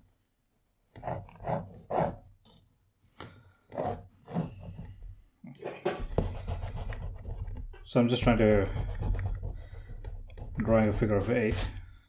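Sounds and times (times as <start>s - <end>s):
pencil scratching on paper: 1.0s - 2.2s, 3.7s - 5.2s, 6.1s - 10.8s.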